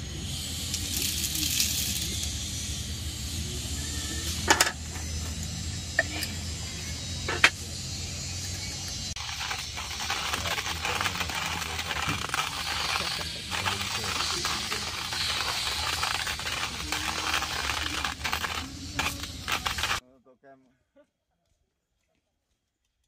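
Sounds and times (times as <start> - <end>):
hand coffee grinder crunching: 0.7 - 2.5, 9.2 - 20.0.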